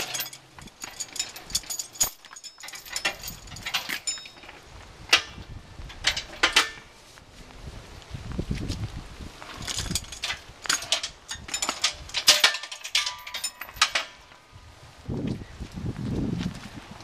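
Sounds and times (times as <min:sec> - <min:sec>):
ringing metal clink: 0:00.0 - 0:05.3, 0:09.7 - 0:14.2
metal hardware clinking: 0:00.0 - 0:06.9, 0:09.6 - 0:14.4.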